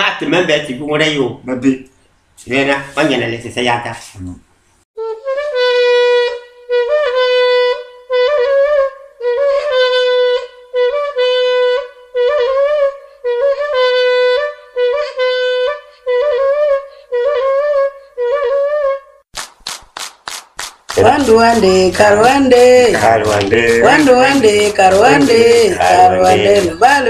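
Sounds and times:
wind instrument notes: 5.0 - 19.2, 21.0 - 27.0
sharp clicks: 19.4 - 21.0.

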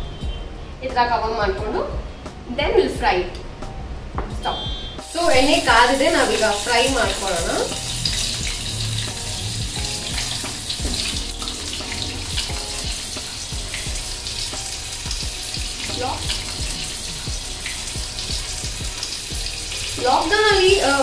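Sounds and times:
chicken deep-frying in hot oil: 5.0 - 21.0.

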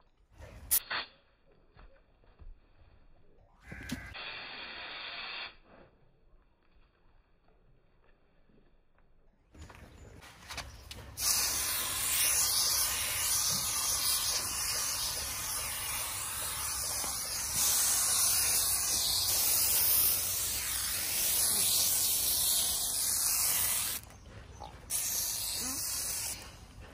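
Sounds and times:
aerosol spray can hissing: 11.2 - 24.0, 24.9 - 26.5.

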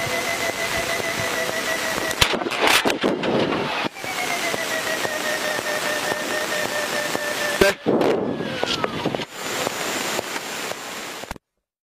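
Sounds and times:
tone sliding down in pitch: 0.0 - 2.7, 3.6 - 9.3
aircraft cabin noise: 0.0 - 11.3.

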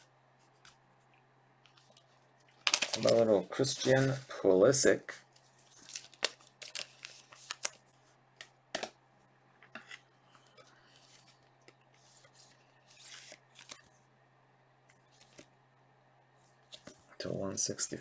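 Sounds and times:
faint electrical hum: 0.0 - 18.0
plastic sleeve rustling: 0.5 - 4.4, 5.3 - 8.1.

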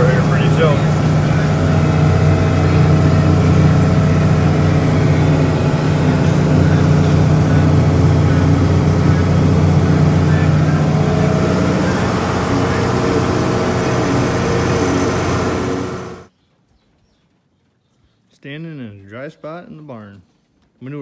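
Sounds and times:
tractor diesel engine running: 0.0 - 16.3.

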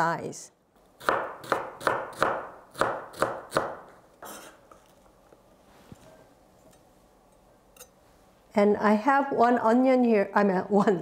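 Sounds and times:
knife chopping on wooden board: 1.0 - 4.5.

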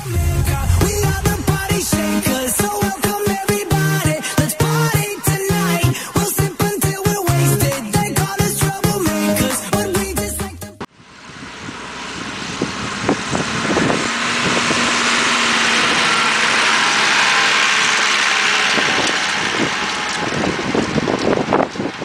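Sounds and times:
disc harrow rushing rumble: 0.0 - 5.1, 11.2 - 22.0
tractor engine: 0.0 - 22.0.

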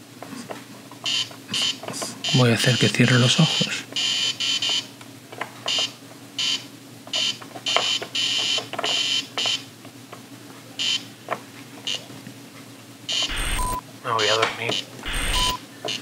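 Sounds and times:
electronic buzzing tone: 13.1 - 13.8, 14.7 - 16.0.

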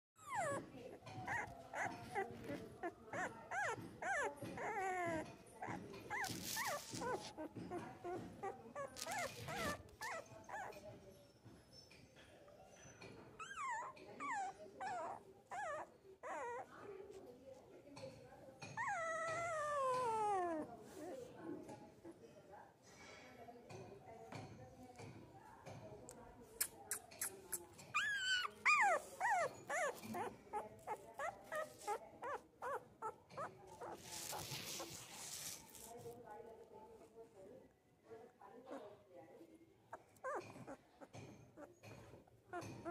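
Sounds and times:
puppy whimpering and crying: 0.2 - 10.8, 13.4 - 16.7, 18.7 - 21.1, 27.9 - 34.9, 39.9 - 42.9.

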